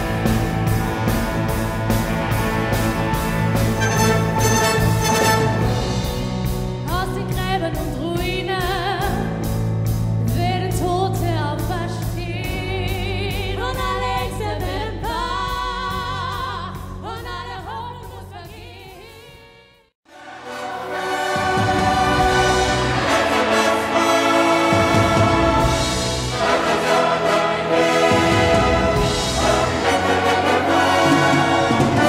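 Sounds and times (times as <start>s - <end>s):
sustained low orchestral notes: 0.0s - 6.6s.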